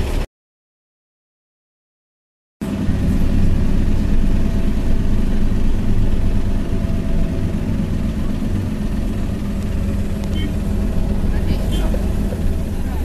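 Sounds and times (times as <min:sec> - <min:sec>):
bus diesel engine rumble: 0:00.0 - 0:00.3, 0:02.6 - 0:13.0.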